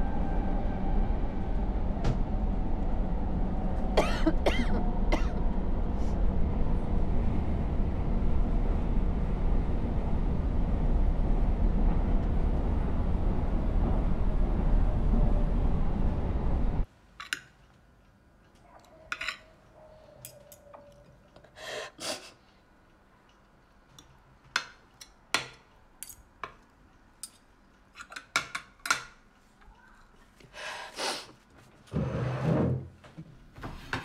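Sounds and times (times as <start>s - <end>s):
cutlery clinking on a plate: 19.1s - 19.5s.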